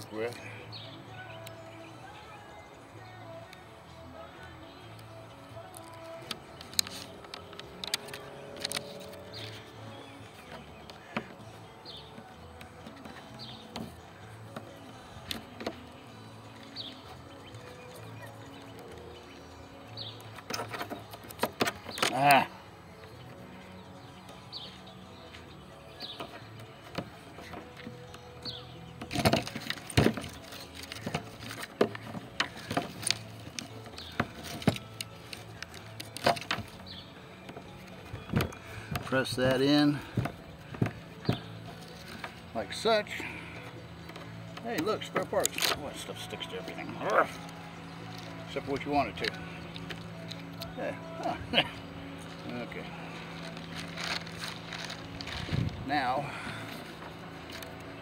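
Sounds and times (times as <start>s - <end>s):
faint background music: 0.0s - 58.0s
tape peeling and crackling: 5.6s - 9.8s, 29.0s - 36.8s, 53.2s - 55.8s.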